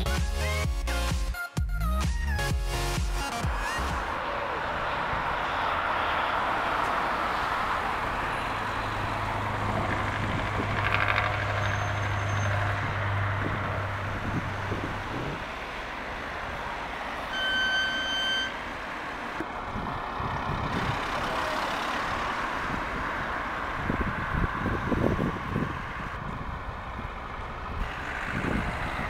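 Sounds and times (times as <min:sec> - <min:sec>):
heavy truck engine drone: 0:02.3 - 0:29.0
high beep: 0:17.3 - 0:18.6.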